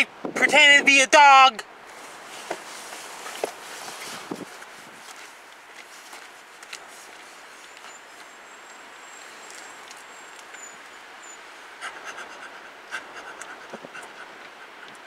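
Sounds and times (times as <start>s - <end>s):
man imitating dog panting: 11.8s - 15.0s.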